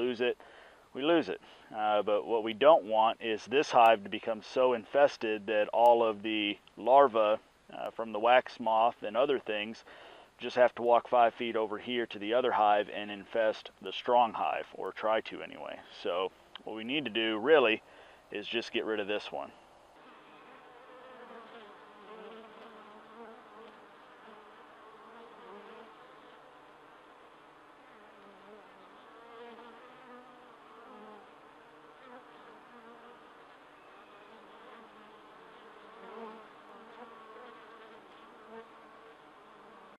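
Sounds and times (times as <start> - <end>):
honeybees buzzing: 19.9 - 40.0.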